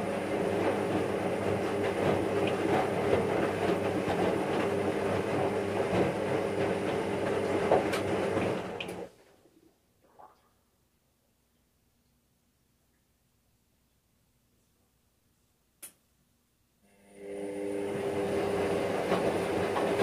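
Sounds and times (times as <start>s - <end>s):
washing machine running: 0.0s - 9.2s, 16.9s - 20.0s.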